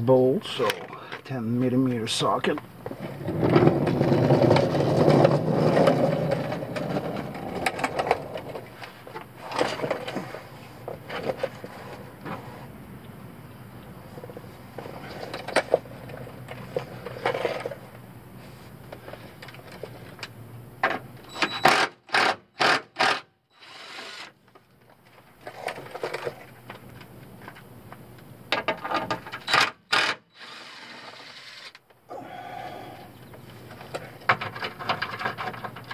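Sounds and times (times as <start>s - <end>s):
metal scraping on plastic: 2.8s - 12.7s.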